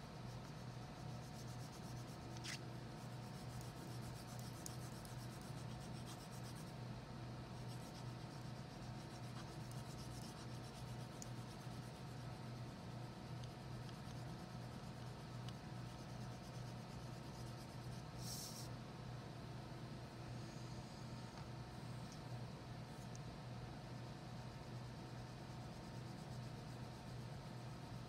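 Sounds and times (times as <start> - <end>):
low steady hum: 0.0 - 28.0
crayon scratching on paper: 0.4 - 6.7, 7.6 - 12.2.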